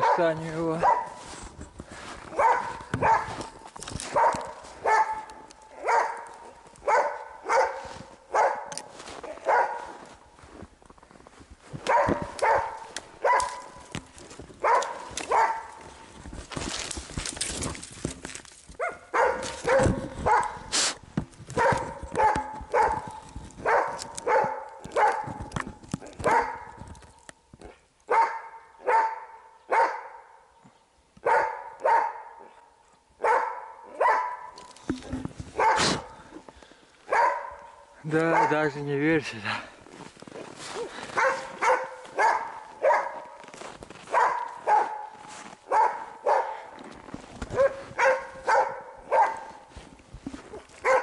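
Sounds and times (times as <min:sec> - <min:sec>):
dog barking: 0:00.0 - 0:01.2, 0:02.3 - 0:10.1, 0:11.8 - 0:13.8, 0:14.6 - 0:15.8, 0:18.8 - 0:20.7, 0:21.6 - 0:25.4, 0:26.0 - 0:26.8, 0:28.1 - 0:30.4, 0:31.2 - 0:32.6, 0:33.2 - 0:34.6, 0:35.6 - 0:36.1, 0:37.1 - 0:38.7, 0:40.8 - 0:43.4, 0:44.1 - 0:46.8, 0:47.5 - 0:49.7.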